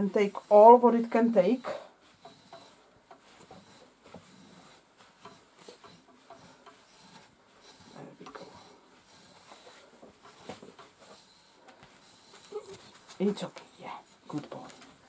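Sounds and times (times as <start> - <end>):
metal rake scraping through fur: 0.0 - 13.5.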